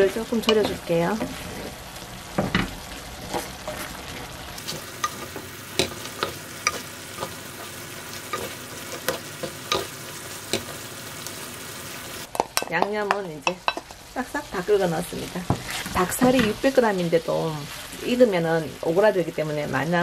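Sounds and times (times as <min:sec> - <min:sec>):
spoon knocking and scraping pan: 0:00.0 - 0:10.9, 0:12.2 - 0:14.0, 0:15.4 - 0:16.7
wooden spoon stirring in a pan: 0:00.0 - 0:11.0, 0:15.3 - 0:18.2
sauce sizzling: 0:00.0 - 0:20.0.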